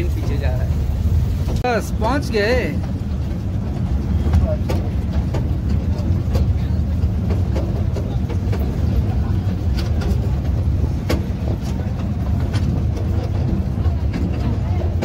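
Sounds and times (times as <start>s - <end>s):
carriages clanking: 0.0s - 15.0s
mini train rumbling on track: 0.0s - 15.0s.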